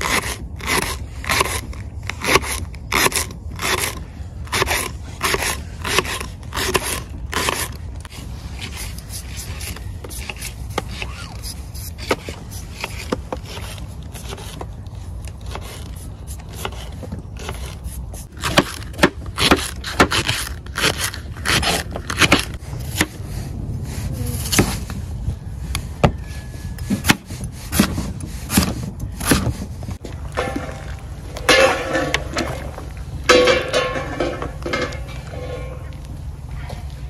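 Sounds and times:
steady low rumble: 0:22.5 - 0:26.8.

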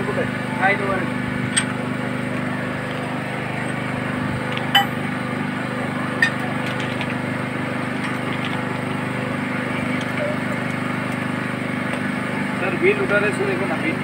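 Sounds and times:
metallic clinks: 0:04.8 - 0:05.0.

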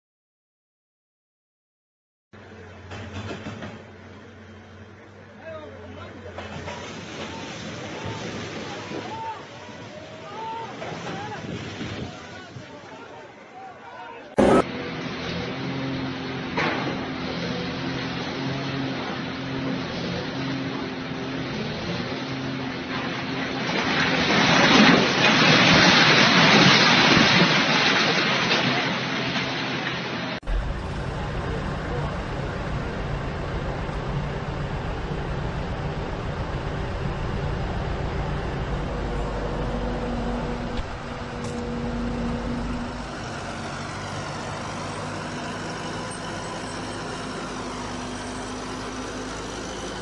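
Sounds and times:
diesel engine droning: 0:02.4 - 0:11.3, 0:12.5 - 0:26.4, 0:30.4 - 0:50.0
deep engine rumble: 0:30.4 - 0:50.0.

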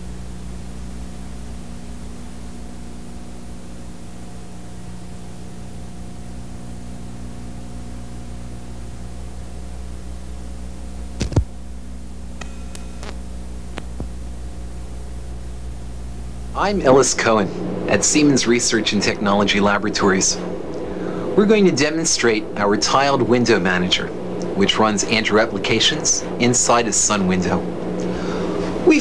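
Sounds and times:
tape hiss and electrical hum: 0:00.0 - 0:29.0
sharp click: 0:11.2 - 0:11.5, 0:12.4 - 0:13.2.

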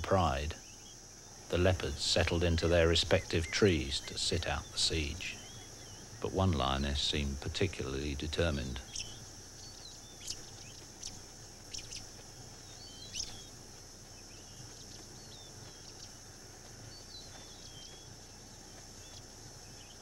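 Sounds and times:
sharp bird calls: 0:00.0 - 0:13.6
high insect drone: 0:00.0 - 0:20.0.

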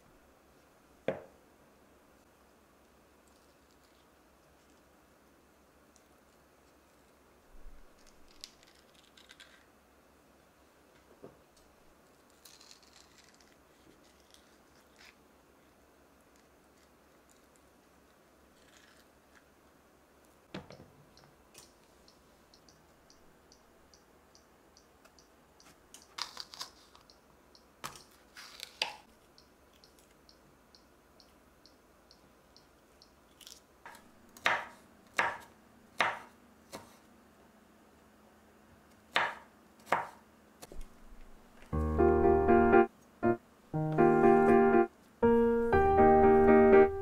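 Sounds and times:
faint ticking: 0:22.0 - 0:25.7
knife chopping on wooden board: 0:33.9 - 0:36.9, 0:39.1 - 0:40.2
piano music: 0:41.7 - 0:47.0.

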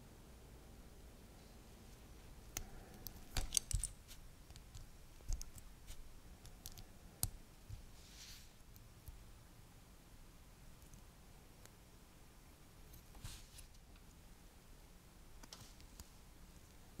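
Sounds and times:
plastic toy parts clicking: 0:02.6 - 0:04.0.

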